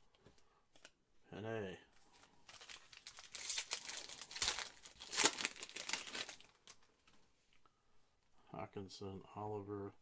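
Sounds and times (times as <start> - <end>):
foil wrapper crinkling and tearing: 2.5 - 6.9.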